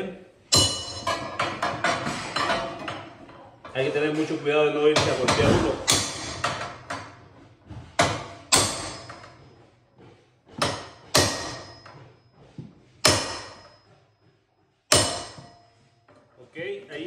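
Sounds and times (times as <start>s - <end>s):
hammer striking nails into wood: 5.0s - 7.1s, 8.0s - 9.2s, 10.6s - 11.7s, 13.0s - 13.7s, 14.9s - 15.6s.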